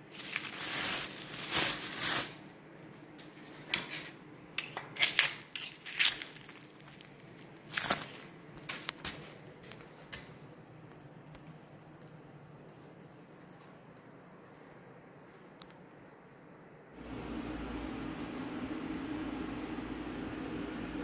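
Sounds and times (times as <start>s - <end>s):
plastic bag crinkling: 0.0s - 2.6s, 5.3s - 11.3s.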